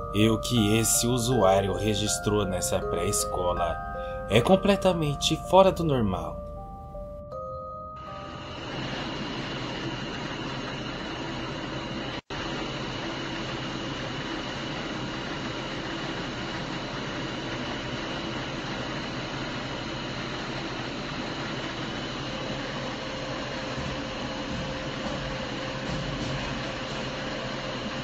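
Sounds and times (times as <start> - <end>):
faint high steady tones: 0.0 - 10.9
low hum: 0.0 - 12.8.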